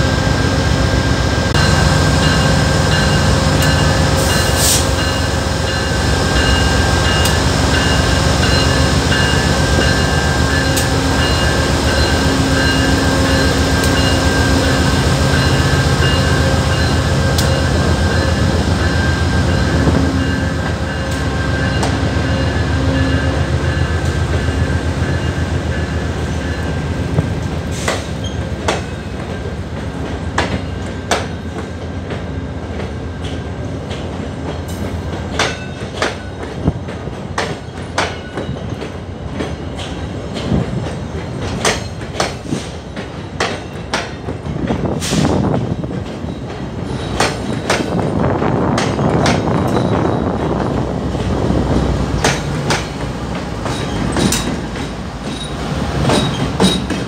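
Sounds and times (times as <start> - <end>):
diesel locomotive engine drone: 0.0 - 57.0
train wheels clicking over rail joints: 26.4 - 57.0.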